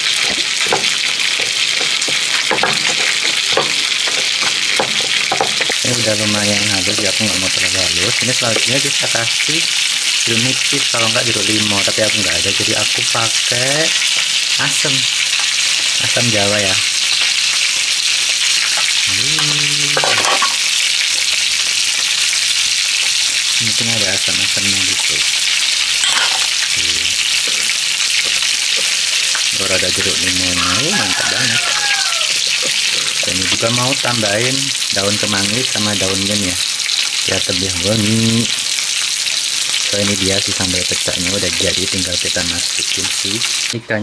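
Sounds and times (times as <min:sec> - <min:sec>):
pestle grinding in stone mortar: 0:00.0 - 0:06.1, 0:25.3 - 0:33.8
person humming: 0:19.0 - 0:20.3, 0:26.7 - 0:27.2.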